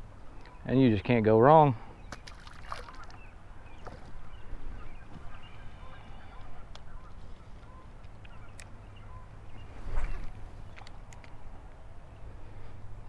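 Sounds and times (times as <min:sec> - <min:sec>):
distant bird calls: 0:00.0 - 0:13.0
wind rumbling on microphone: 0:09.1 - 0:11.9.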